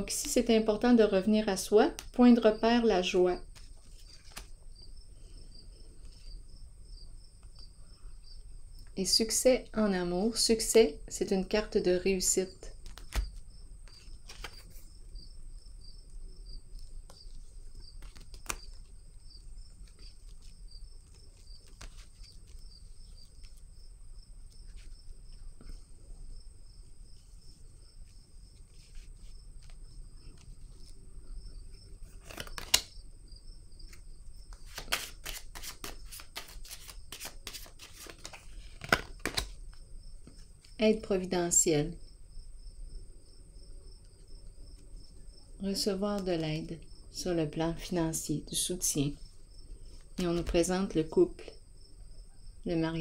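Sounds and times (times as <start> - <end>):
cricket chirping: 2.5 - 9.4, 12.4 - 34.9, 38.2 - 50.0, 50.6 - 53.0
cards being handled: 3.4 - 4.7, 12.7 - 14.9, 16.7 - 19.0, 19.7 - 23.6, 28.0 - 31.0, 31.8 - 33.0, 33.8 - 40.8, 50.0 - 50.7.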